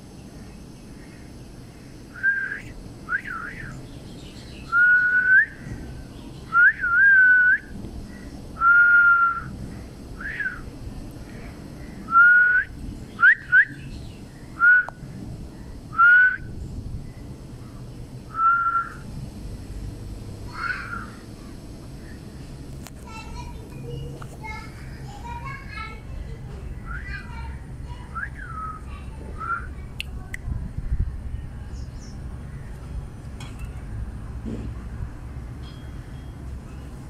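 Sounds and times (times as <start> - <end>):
whistled notes: 2.2 - 3.7, 18.3 - 19.0, 28.1 - 29.7.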